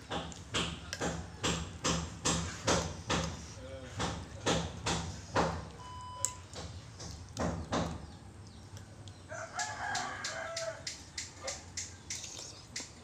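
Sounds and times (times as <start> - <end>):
rooster crowing: 9.3 - 11.0
eating noodle soup: 10.5 - 13.0.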